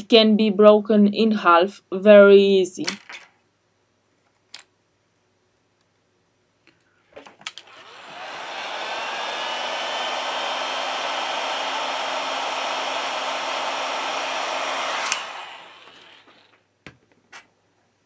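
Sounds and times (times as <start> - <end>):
heat gun fan whine: 7.6 - 16.6
heat gun switch click: 15.0 - 15.3.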